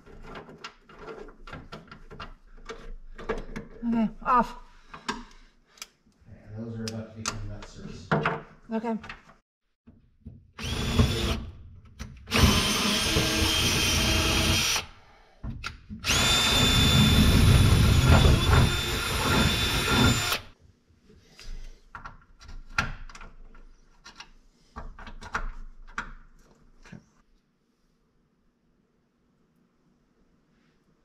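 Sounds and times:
power drill boring into steel: 0:10.6 - 0:11.4, 0:12.3 - 0:15.0, 0:16.0 - 0:20.5.

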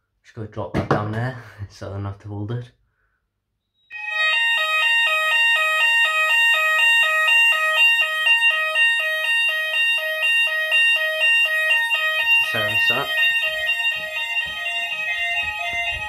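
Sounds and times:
fire alarm sounders: 0:03.7 - 0:16.0.

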